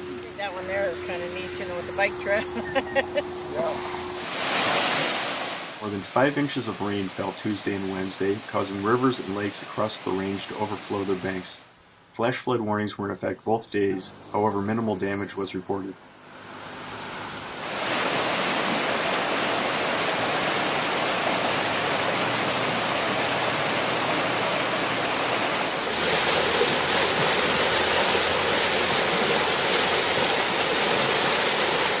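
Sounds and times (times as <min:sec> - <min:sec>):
floodwater rushing: 0:00.0 - 0:11.6, 0:17.4 - 0:32.0
water gushing from a culvert: 0:04.2 - 0:11.5, 0:17.5 - 0:32.0.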